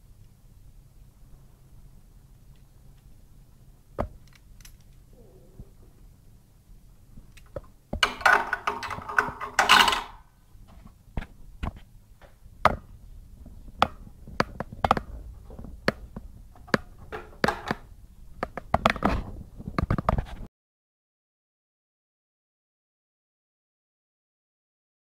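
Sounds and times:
metal parts scraping: 0:08.0 - 0:10.2.

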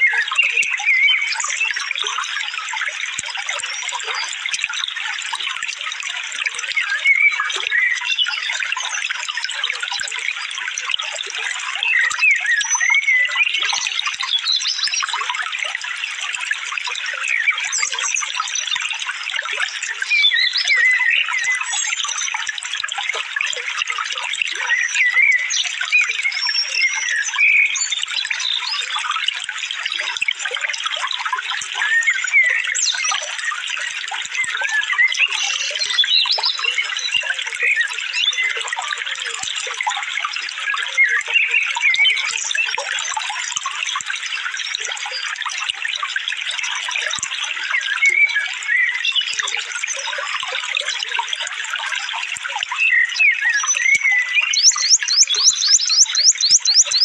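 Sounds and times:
running water stream: 0:00.0 - 0:57.0
songbirds chirping: 0:52.3 - 0:57.0.

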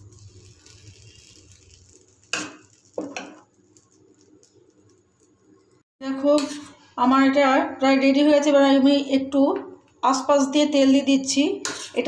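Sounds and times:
metal ladle scraping pan: 0:00.0 - 0:03.4, 0:06.1 - 0:06.9, 0:11.6 - 0:12.0.

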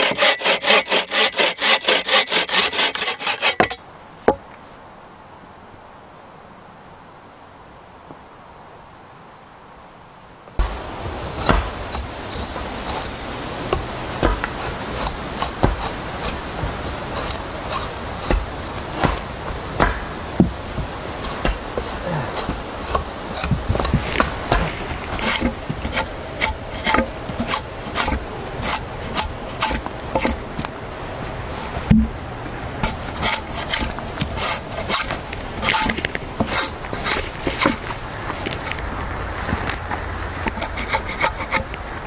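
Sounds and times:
wood scraping strokes: 0:00.0 - 0:04.8, 0:10.6 - 0:42.0
sharp wooden knocks: 0:18.3 - 0:26.1, 0:31.9 - 0:32.2.

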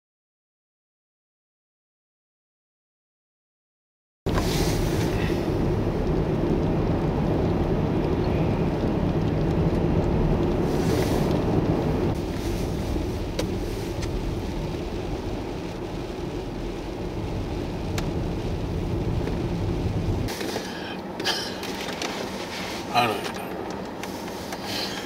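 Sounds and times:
vehicles rumbling on highway: 0:04.3 - 0:25.0.

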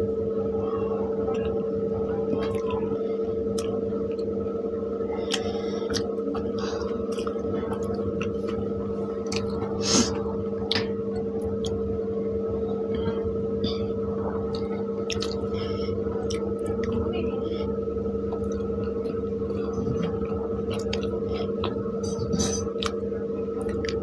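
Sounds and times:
steady hum: 0:00.0 - 0:24.0
wet chewing and squishing: 0:02.3 - 0:02.8, 0:03.6 - 0:04.3, 0:05.3 - 0:10.1, 0:10.7 - 0:11.8, 0:14.5 - 0:15.6, 0:16.2 - 0:17.0, 0:18.3 - 0:24.0
mouth clicks and smacks: 0:14.5 - 0:15.5.

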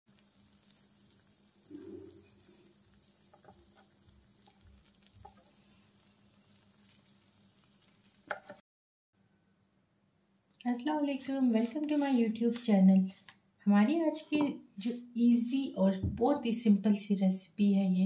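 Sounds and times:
faint sizzling of hot plates: 0:00.1 - 0:08.6.

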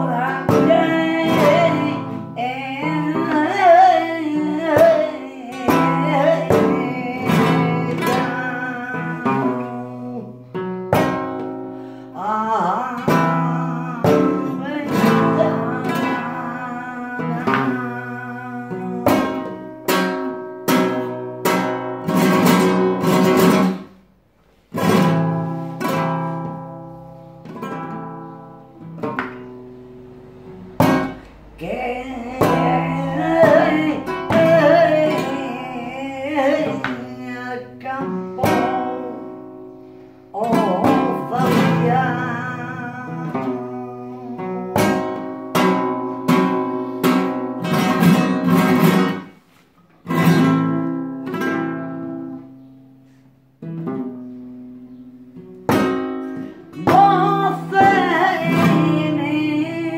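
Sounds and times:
woman singing: 0:00.0 - 0:23.9, 0:30.8 - 0:39.7, 0:40.3 - 0:49.2, 0:55.7 - 0:59.9
flamenco guitar chords: 0:00.0 - 0:59.9.

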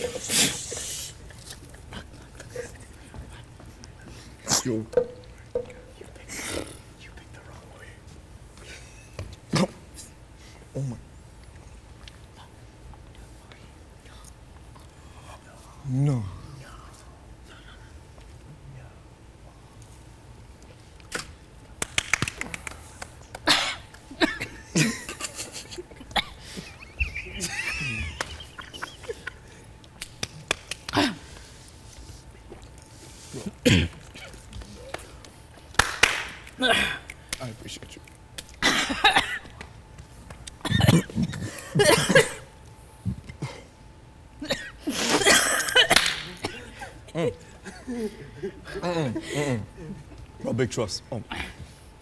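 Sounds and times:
person coughing: 0:23.5 - 0:25.2, 0:33.6 - 0:34.3, 0:38.6 - 0:39.5, 0:40.6 - 0:42.5, 0:44.4 - 0:47.0
person clearing throat: 0:33.6 - 0:34.4, 0:40.6 - 0:42.5.

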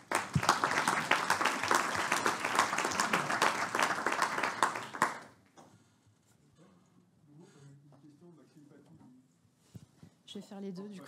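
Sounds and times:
audience applause: 0:00.0 - 0:05.3.

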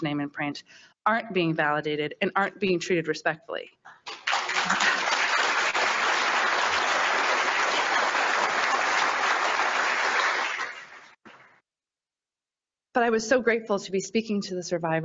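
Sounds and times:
audience applauding: 0:04.0 - 0:11.2.

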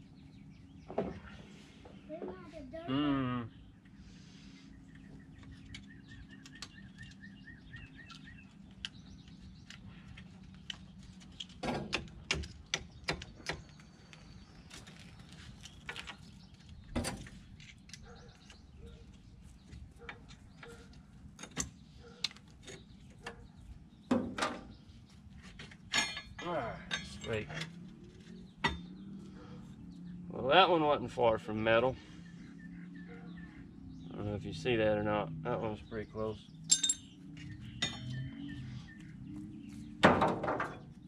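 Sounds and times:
bird chirping: 0:00.0 - 0:41.0.

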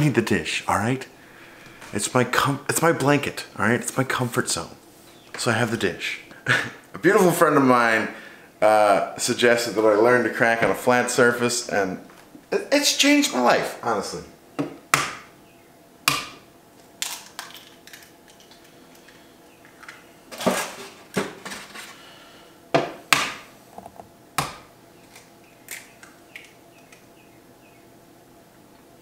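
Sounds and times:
eggs cracking on countertop: 0:17.0 - 0:20.0, 0:24.4 - 0:27.1.

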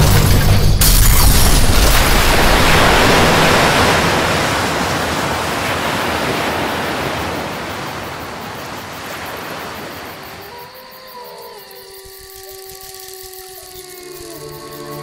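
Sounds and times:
rushing wash of noise: 0:01.9 - 0:10.3.

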